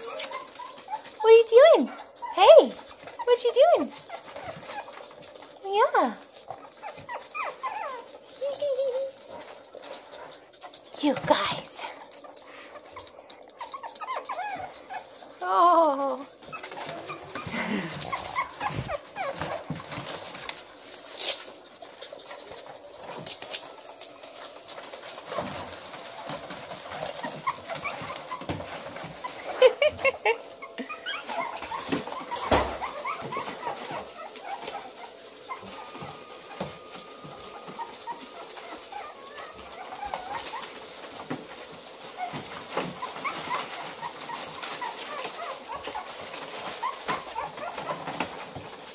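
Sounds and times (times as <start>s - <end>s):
puppies whining and yipping: 0.0s - 48.9s
newspaper rustling and crinkling: 14.6s - 48.9s.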